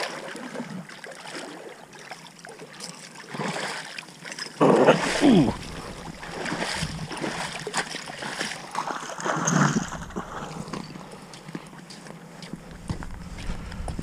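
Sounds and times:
fish splashing in water: 0:00.0 - 0:11.0.

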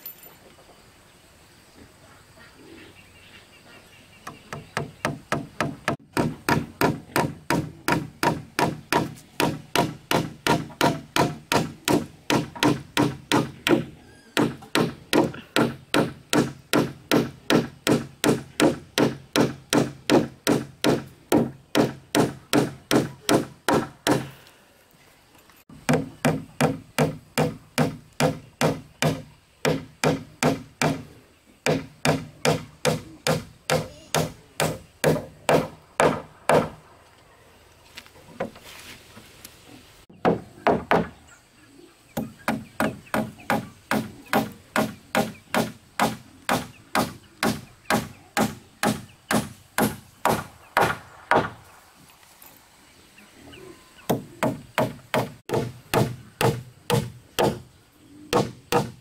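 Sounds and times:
hatchet chopping wood: 0:04.5 - 0:24.3, 0:25.7 - 0:31.0, 0:31.6 - 0:36.8, 0:40.2 - 0:41.1, 0:42.2 - 0:51.6, 0:54.1 - 0:57.6, 0:58.3 - 0:59.0.

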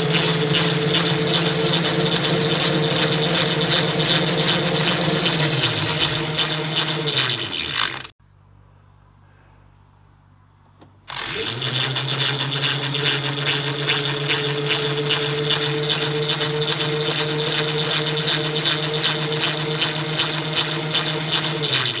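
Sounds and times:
electric motor wheel humming: 0:00.0 - 0:08.1, 0:11.1 - 0:22.0
rattle: 0:00.0 - 0:08.1.

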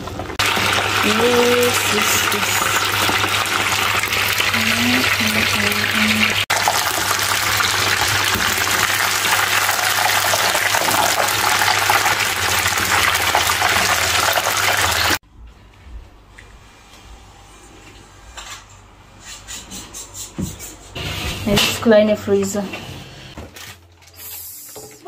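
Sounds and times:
chicken deep-frying in oil: 0:00.0 - 0:15.2.

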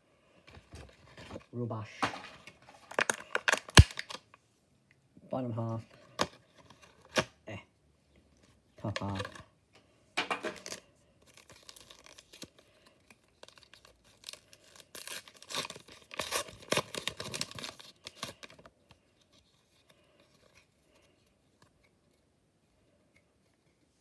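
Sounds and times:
packaging torn and crinkled: 0:02.8 - 0:04.4, 0:10.5 - 0:18.6.

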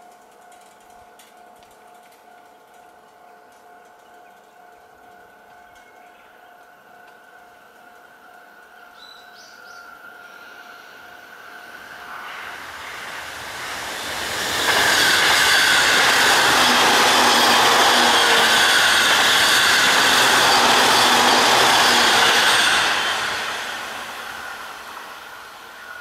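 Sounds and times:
electric train passing on rails: 0:00.0 - 0:26.0.

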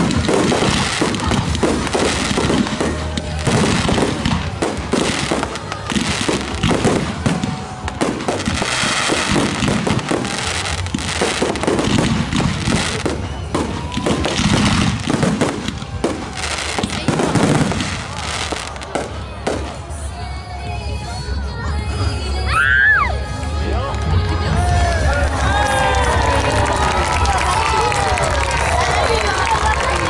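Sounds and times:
fireworks booming: 0:00.0 - 0:19.9
fireworks crackling: 0:00.0 - 0:21.2, 0:23.9 - 0:30.0.

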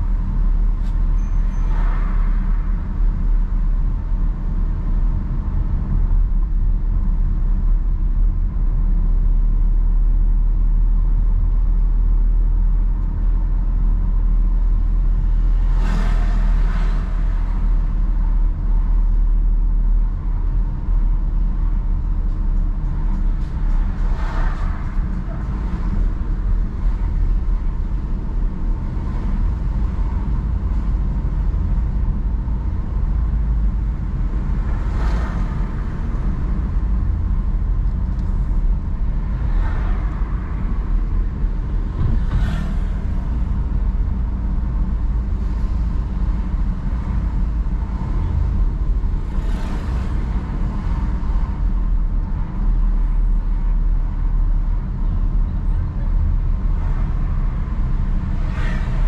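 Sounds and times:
car engine and tyres rumbling: 0:00.0 - 0:59.0.

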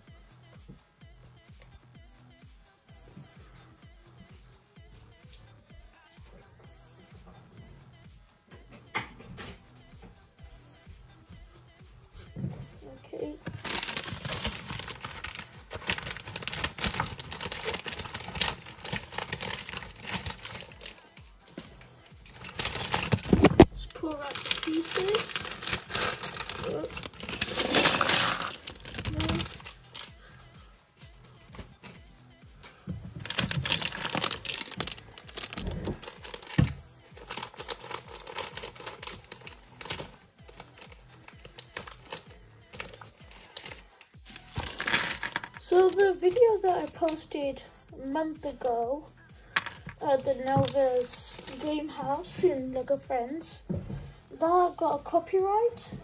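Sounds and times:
faint background music: 0:00.0 - 0:56.0
plastic bag crinkling: 0:13.4 - 0:21.0, 0:22.2 - 0:30.1, 0:33.2 - 0:47.3, 0:49.6 - 0:51.9
plastic pieces clicking and rattling: 0:13.5 - 0:21.0, 0:22.2 - 0:30.1, 0:33.3 - 0:47.2.

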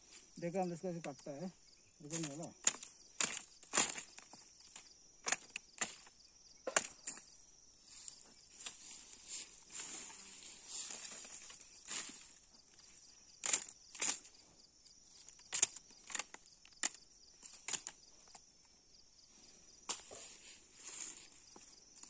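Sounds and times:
machete strikes through grass: 0:02.1 - 0:06.1, 0:06.7 - 0:07.2
rustle of leaves: 0:07.9 - 0:14.3.

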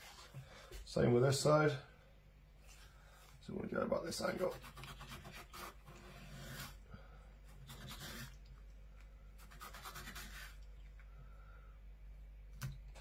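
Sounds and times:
knife scratching through fish skin: 0:04.4 - 0:06.8, 0:07.5 - 0:08.4, 0:09.4 - 0:10.6.

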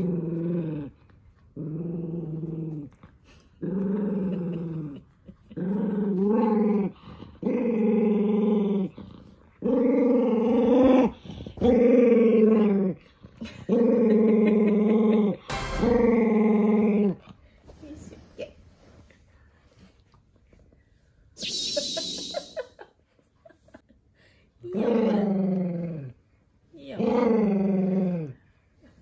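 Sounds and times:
dog growling: 0:00.0 - 0:17.4.

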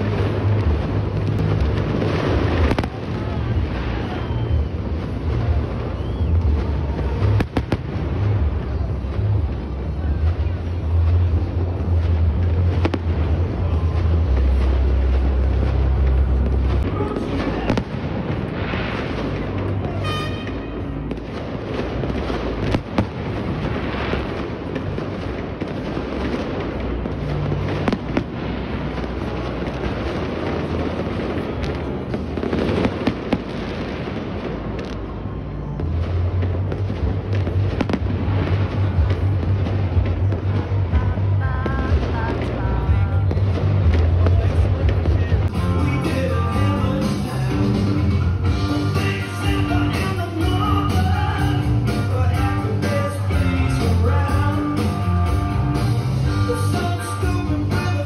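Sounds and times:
sharp firework cracks: 0:00.0 - 0:47.5
low rumble of firework bursts: 0:00.0 - 0:58.0
faint firework whistles: 0:02.6 - 0:07.8.

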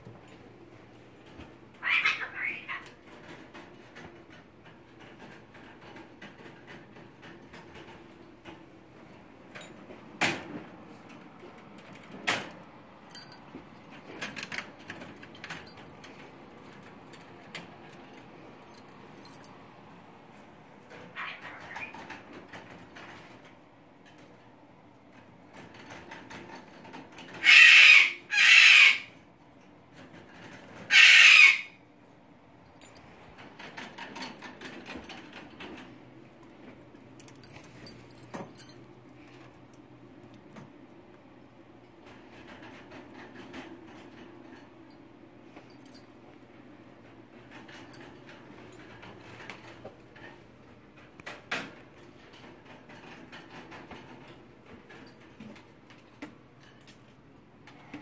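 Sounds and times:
parrot screeching: 0:01.8 - 0:02.9, 0:21.1 - 0:22.0, 0:27.4 - 0:29.2, 0:30.9 - 0:31.8.

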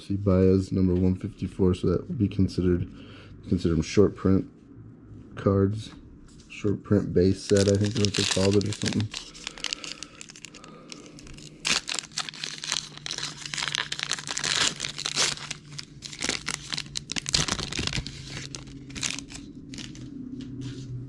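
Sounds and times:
wrapper torn and crinkled: 0:07.4 - 0:20.1.

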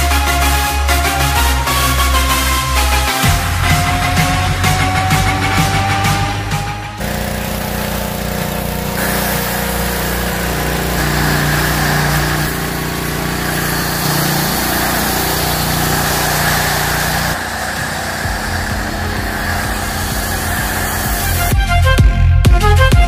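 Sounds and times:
pressure washer motor running: 0:00.1 - 0:21.7
water spray hissing on truck: 0:07.0 - 0:21.5.

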